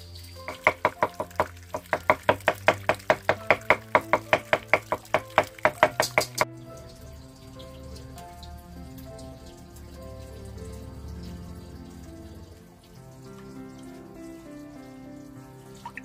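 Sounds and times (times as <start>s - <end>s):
background music: 0.0s - 16.0s
knife chopping on wooden board: 0.5s - 6.5s.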